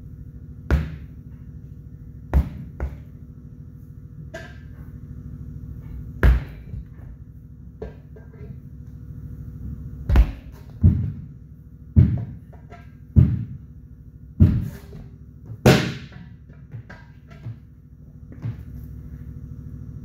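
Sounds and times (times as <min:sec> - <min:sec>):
tire iron thudding against rim: 0:00.6 - 0:01.4, 0:02.2 - 0:03.2, 0:04.3 - 0:04.8, 0:05.8 - 0:08.7, 0:10.1 - 0:18.8.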